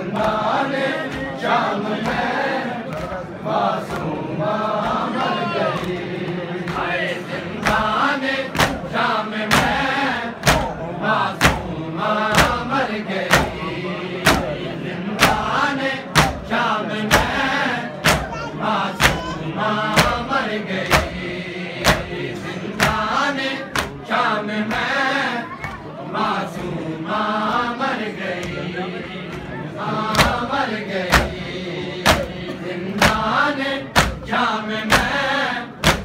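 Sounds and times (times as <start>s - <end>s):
men chanting in unison: 0.0s - 36.0s
chest-beating slaps: 7.6s - 8.9s, 10.4s - 10.8s, 11.4s - 13.6s, 18.0s - 18.4s, 32.0s - 33.3s, 34.0s - 34.3s.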